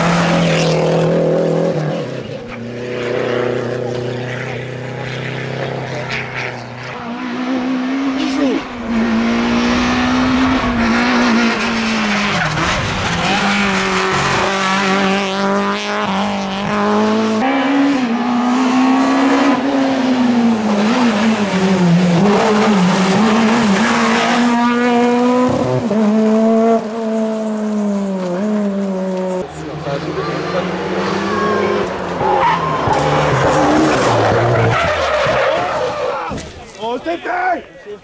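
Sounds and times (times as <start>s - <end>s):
rally car engine at high revs: 0.0s - 36.4s
tyre noise: 28.1s - 37.2s.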